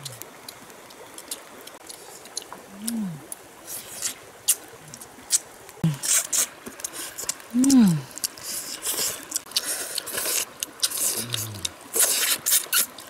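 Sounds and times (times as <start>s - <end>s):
background hiss: 0.0s - 13.0s
people eating with fingers: 0.0s - 13.0s
person humming mmm: 2.6s - 3.3s, 5.8s - 6.1s, 7.5s - 8.3s, 10.9s - 12.1s.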